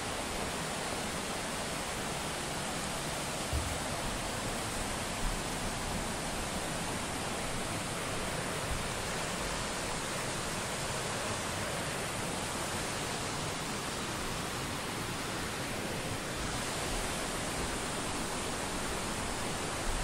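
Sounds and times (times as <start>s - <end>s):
waterfall rushing: 0.0s - 20.0s.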